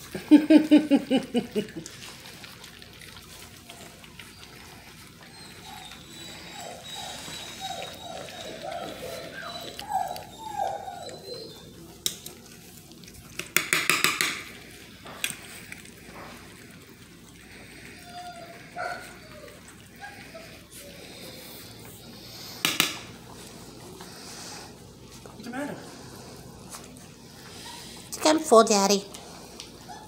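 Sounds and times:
wet eating sounds: 0.0 - 30.0
puppies squeaking: 3.7 - 12.6.

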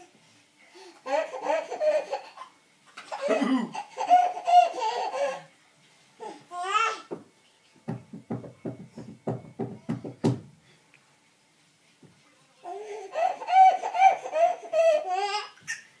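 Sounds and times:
baby laughing: 1.0 - 5.5, 12.8 - 15.9.

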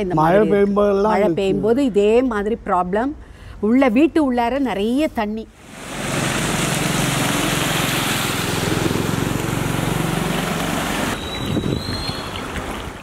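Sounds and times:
loud rushing noise: 5.6 - 11.2
motor engine humming: 5.8 - 11.2.

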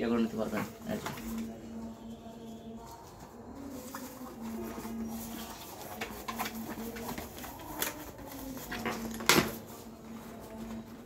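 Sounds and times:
backpack material rustling: 2.7 - 11.0.

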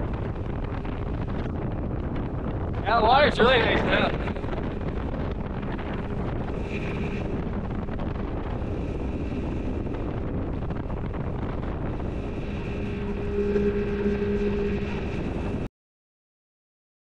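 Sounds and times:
wind noise on microphone: 0.0 - 15.7
speedboat engine drone: 3.2 - 15.7.

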